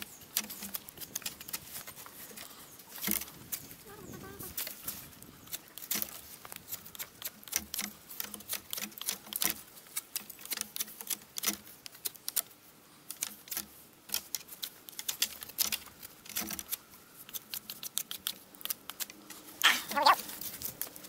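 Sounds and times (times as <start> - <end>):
knife whittling wood: 13.5 - 20.7.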